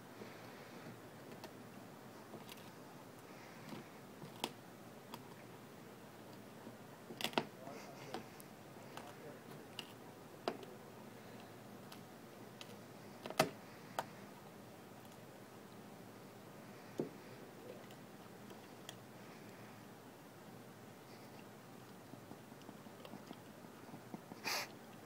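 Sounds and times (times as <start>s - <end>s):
dog chewing wooden stick: 21.2s - 24.4s.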